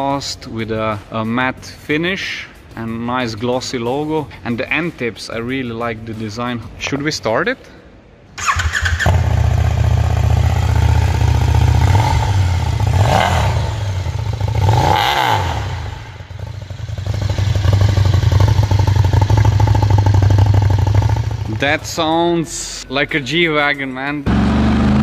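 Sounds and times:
motorcycle engine revving: 8.4 - 21.7, 24.3 - 25.0.

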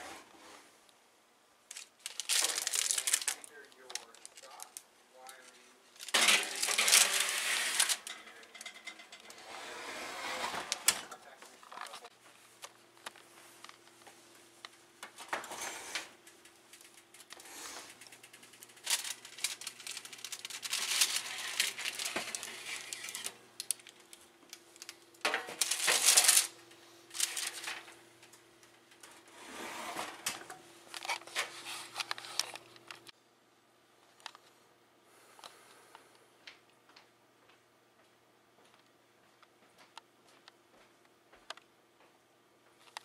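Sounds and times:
baking tray clattering and scraping: 6.1 - 11.2, 18.8 - 23.4, 29.0 - 30.6.

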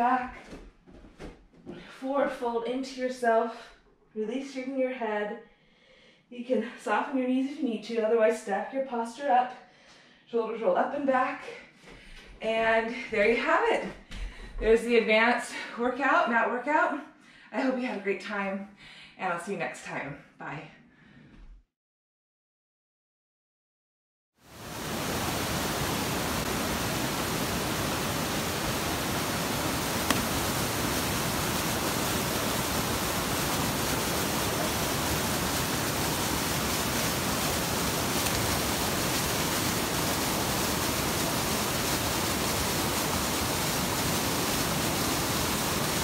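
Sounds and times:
falling water rushing: 24.5 - 46.0.

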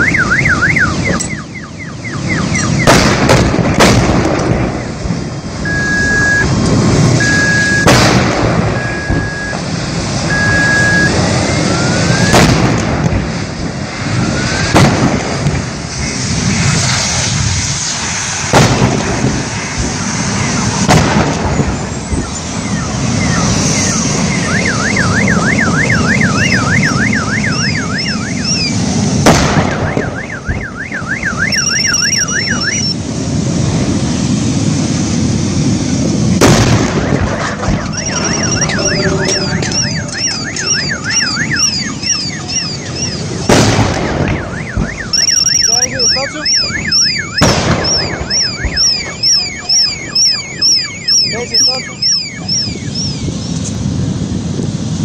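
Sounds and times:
car alarms wailing: 0.0 - 3.0, 4.7 - 8.0, 8.6 - 12.5, 21.6 - 29.1, 29.7 - 33.0, 36.9 - 53.7
steady low rumble: 2.6 - 30.1, 31.3 - 55.0
loud explosion bangs: 2.8 - 11.3, 12.0 - 17.4, 18.4 - 20.0, 20.7 - 22.2, 28.4 - 30.2, 36.2 - 45.2, 46.9 - 49.2.

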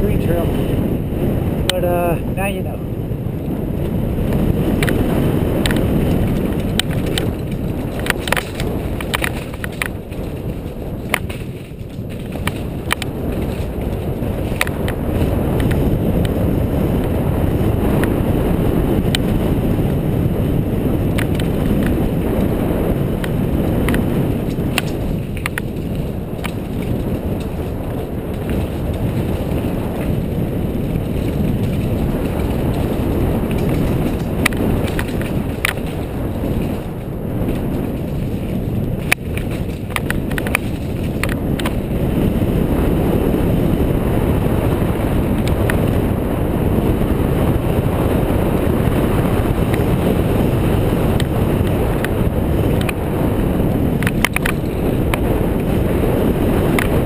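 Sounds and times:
bike tyres and frame rattling: 0.0 - 57.0
wind rushing over microphone: 0.0 - 57.0
sharp clicks and knocks: 5.6 - 15.0, 23.8 - 29.4, 30.8 - 41.9, 54.0 - 55.2.

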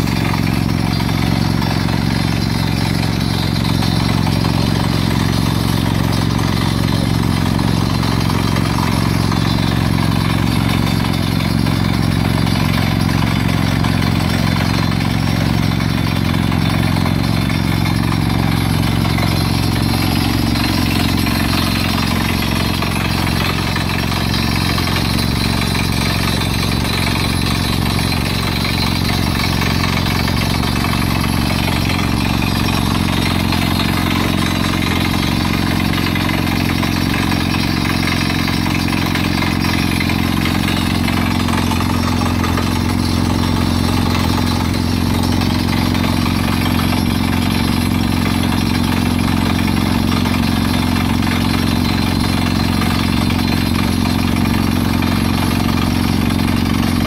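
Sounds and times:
diesel engine under load: 0.0 - 57.0.

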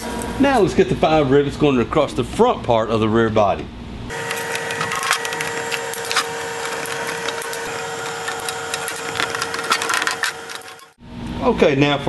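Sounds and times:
steady hum: 0.0 - 11.7
rivet gun clicking and crackling: 4.1 - 10.9.

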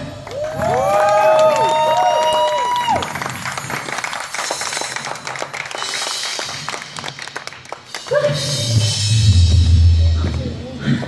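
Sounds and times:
audience applauding: 0.0 - 8.5
band music with bass: 8.1 - 11.0.

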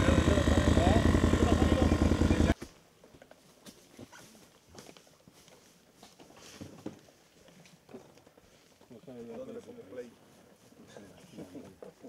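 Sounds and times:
small engine running: 0.0 - 2.6.

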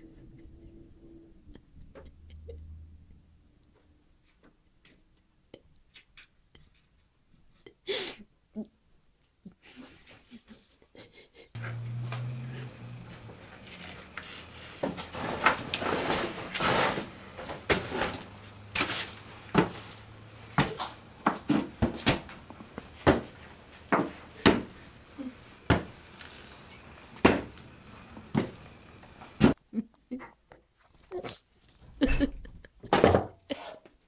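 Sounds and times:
faint steady hum: 11.5 - 30.1
objects knocking and scraping: 11.6 - 24.9, 32.8 - 33.9.

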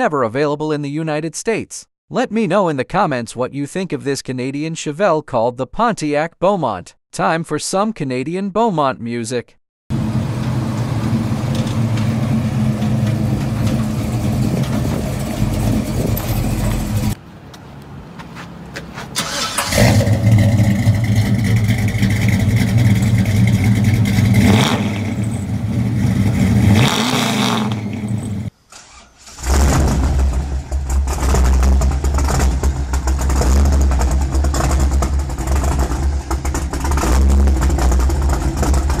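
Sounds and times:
engine revving: 9.9 - 17.2, 19.2 - 39.0
car engine starting: 9.9 - 17.3, 18.7 - 39.0
deep engine idle: 19.8 - 24.5, 30.3 - 39.0.

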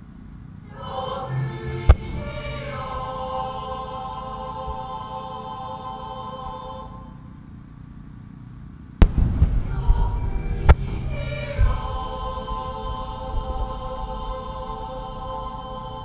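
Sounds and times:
background music: 0.6 - 7.3, 9.0 - 16.0
firework bangs: 9.0 - 11.9
low rolling rumble: 9.0 - 16.0.

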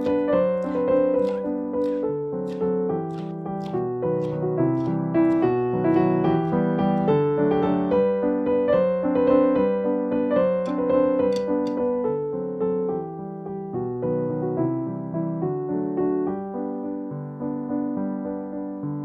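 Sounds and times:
knife chopping on cutting board: 0.0 - 6.6
slow piano melody: 0.0 - 19.0.

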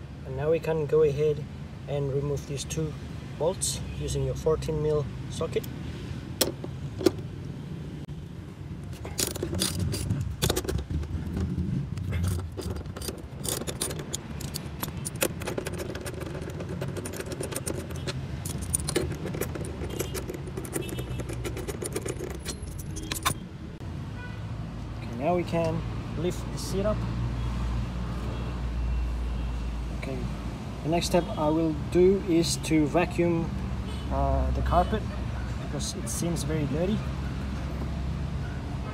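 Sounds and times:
socket wrench ratchet clicking: 9.2 - 10.9, 12.0 - 23.4.

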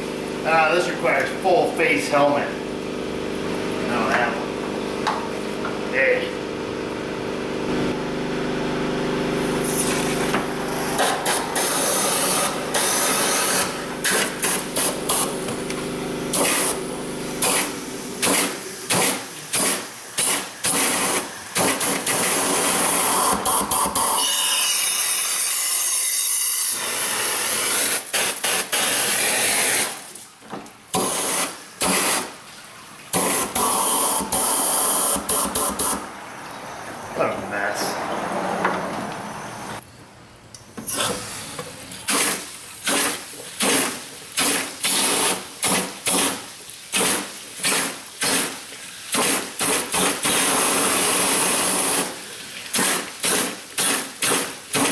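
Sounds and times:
flush gun hissing and spraying: 9.2 - 25.7, 26.7 - 30.3, 30.9 - 32.5, 33.1 - 36.1, 40.9 - 54.9.

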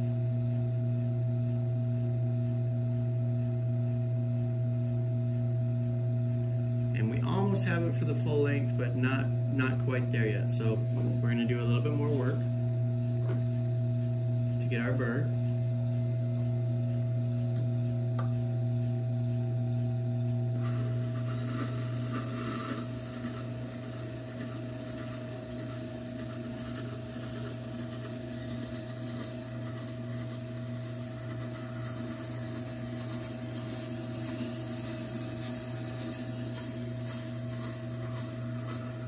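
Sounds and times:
grinder motor humming: 6.4 - 19.4, 20.0 - 39.0
steel rasping on grinding stone: 20.6 - 39.0.

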